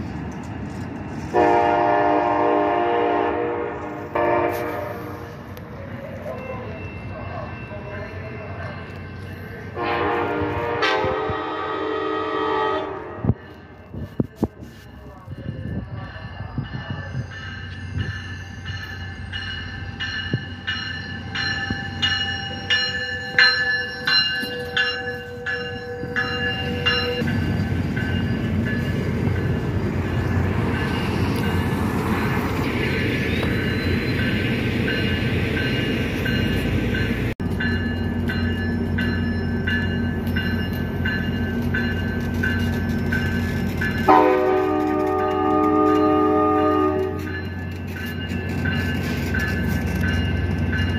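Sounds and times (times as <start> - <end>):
train cars rumbling past: 0.0 - 50.9
train horn: 1.3 - 5.4, 9.8 - 13.4, 44.1 - 47.4
train bell ringing: 4.2 - 10.8, 13.0 - 50.9.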